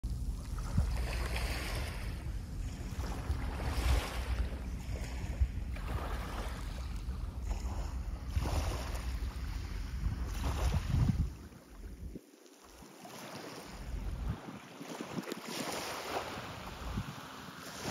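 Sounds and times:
wind rumbling on microphone: 0.1 - 12.3, 13.5 - 17.9
waves washing onto pebbles: 8.3 - 17.9.

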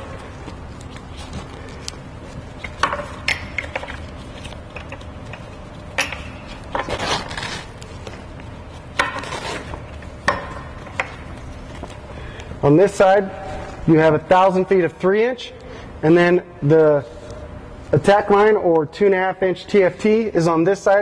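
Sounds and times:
sharp clicks and knocks of fasteners: 2.6 - 6.9
rustling scrapes of cover material: 6.5 - 8.0.

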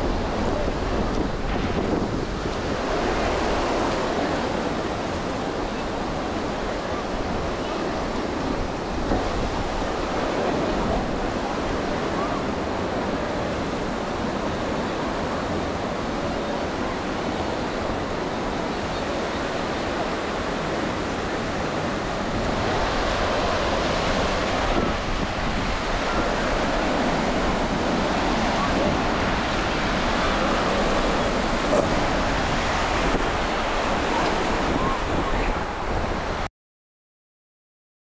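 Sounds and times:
surf breaking on a beach: 0.0 - 36.5.

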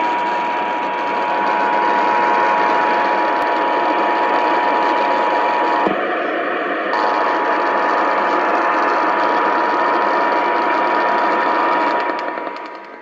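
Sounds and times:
radio static: 6.9 - 13.0.

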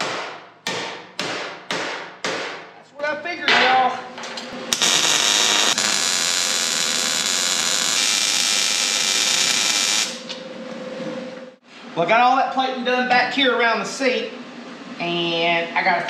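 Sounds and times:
welder hissing: 4.7 - 10.4.

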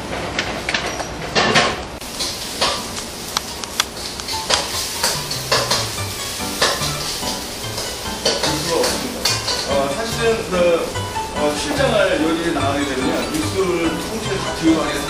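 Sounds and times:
food sizzling in a wok: 2.0 - 15.0
metal ladle scraping pan: 4.0 - 9.9.

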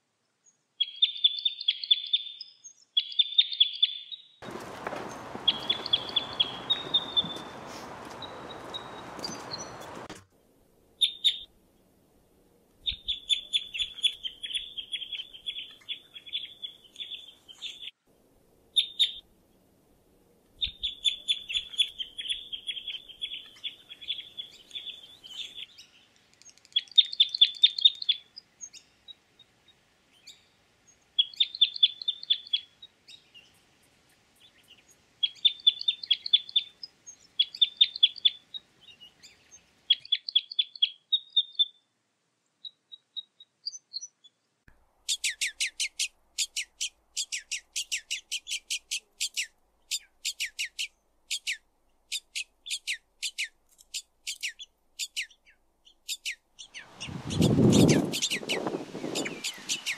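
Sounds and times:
birds chirping in trills: 0.8 - 10.2, 20.6 - 33.6, 34.4 - 41.8, 45.1 - 59.9.

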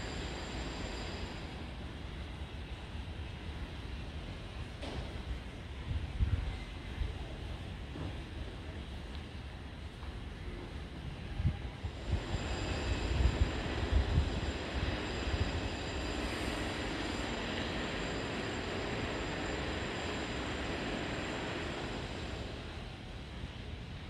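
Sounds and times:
steady rushing noise: 0.0 - 1.9, 11.7 - 24.0
wind buffeting microphone: 4.6 - 8.4, 10.8 - 15.9.

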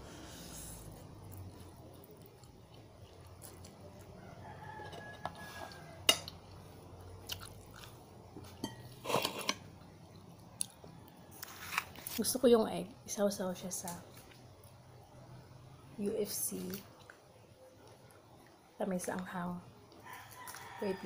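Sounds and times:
close-up chewing: 0.8 - 6.6, 7.2 - 8.6.

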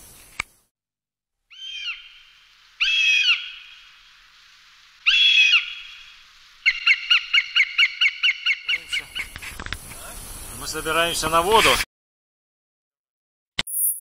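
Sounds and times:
bird screeching calls: 1.5 - 4.0, 5.0 - 9.4.

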